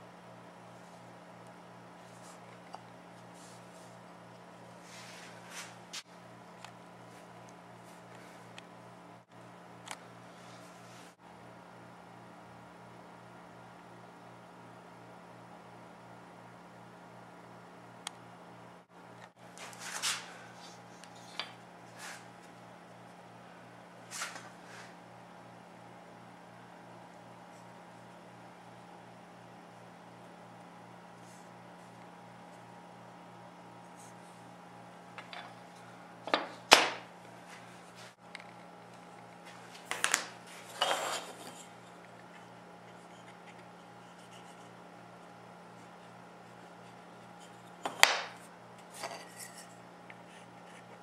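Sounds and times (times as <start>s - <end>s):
low electrical hum: 0.0s - 51.0s
wooden parts clattering: 36.3s - 37.0s.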